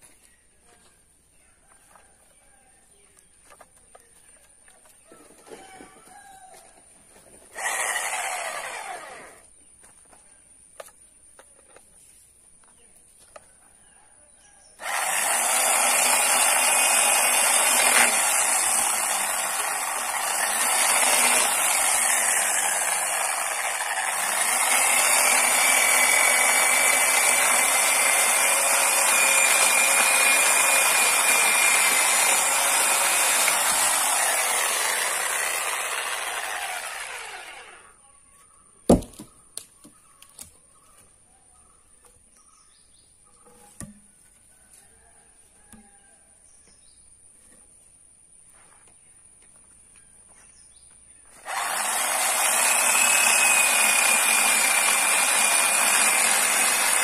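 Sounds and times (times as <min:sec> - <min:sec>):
electric chainsaw cutting log: 0:07.5 - 0:09.5, 0:14.8 - 0:37.9, 0:51.4 - 0:57.0.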